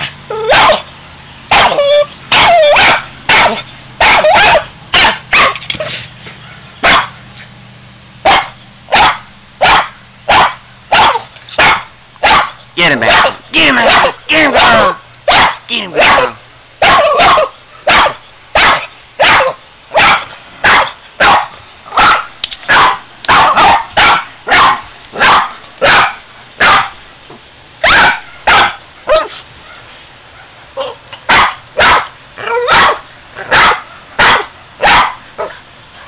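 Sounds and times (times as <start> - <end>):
dog barking: 0.4 - 0.9, 1.5 - 5.6, 6.4 - 7.2, 8.2 - 27.0, 27.8 - 30.6, 31.3 - 35.6
dog yipping softly: 1.5 - 7.0.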